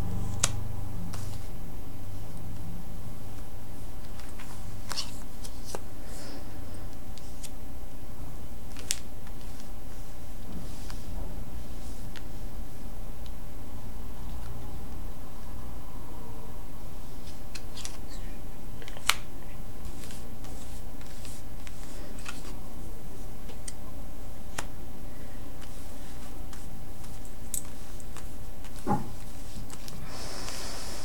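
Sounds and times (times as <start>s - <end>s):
low hum: 0.0s - 8.6s, 9.5s - 27.4s
cards clicking on cards: 4.0s - 5.8s, 8.7s - 9.7s, 17.2s - 18.2s, 18.8s - 22.6s, 25.6s - 28.9s
dull knock: 28.9s - 29.2s.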